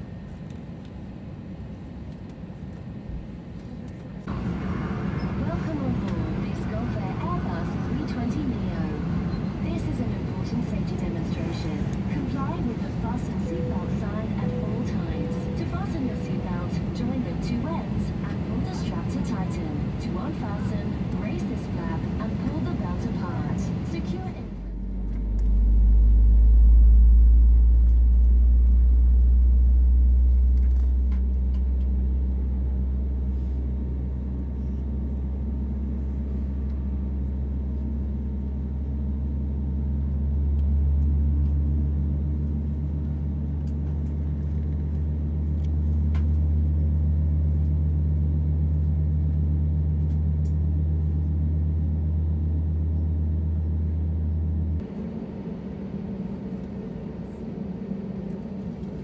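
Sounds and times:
airplane cabin engine rumble: 0.0s - 59.0s.

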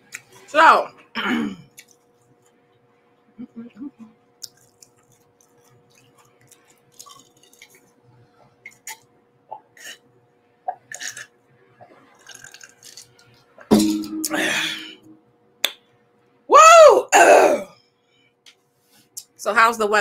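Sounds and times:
sipping and swallowing: 3.9s - 7.9s, 10.7s - 13.4s.

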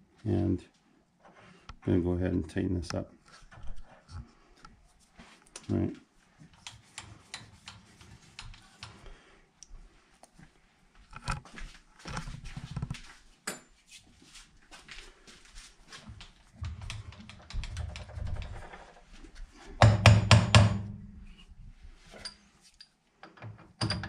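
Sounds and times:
metal clicks and knocks: 16.6s - 19.1s, 23.2s - 24.0s.

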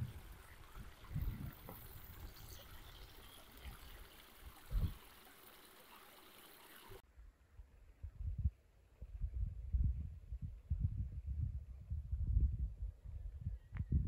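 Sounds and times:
wind rumble on microphone: 0.0s - 5.1s, 7.1s - 14.0s
stream trickling over rocks: 0.0s - 7.0s.

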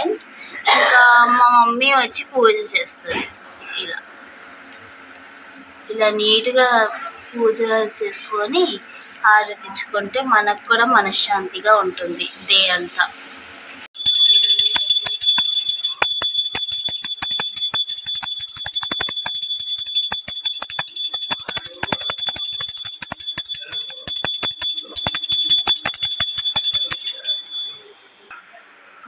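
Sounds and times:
hand bell ringing: 14.0s - 27.9s.

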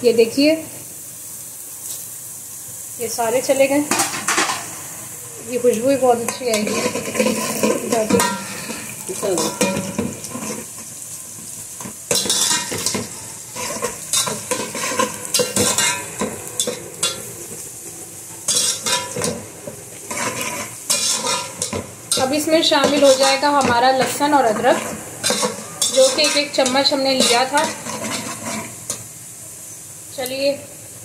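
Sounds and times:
onions sizzling in hot oil: 0.0s - 31.0s
metal spoon scraping pot: 18.5s - 19.4s, 20.1s - 29.0s.

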